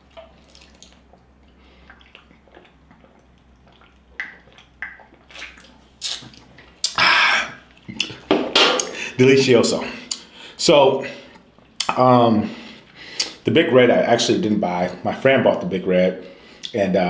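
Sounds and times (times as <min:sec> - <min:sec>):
person gulping soda: 0:00.0 - 0:09.1.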